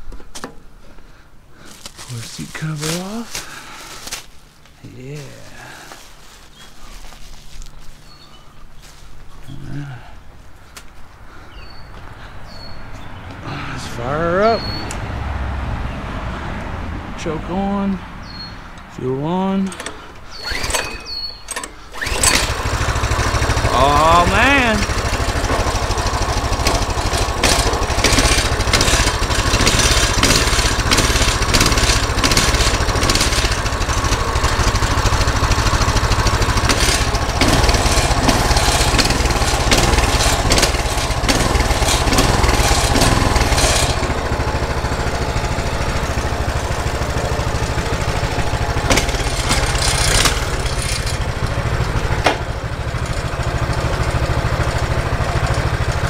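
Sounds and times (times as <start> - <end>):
mini bike engine running: 21.9 - 56.0.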